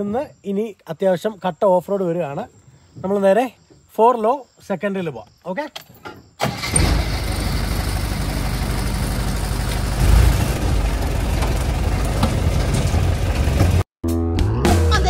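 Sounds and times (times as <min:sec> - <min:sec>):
off-road vehicle engine pulling: 0:06.4 - 0:13.8.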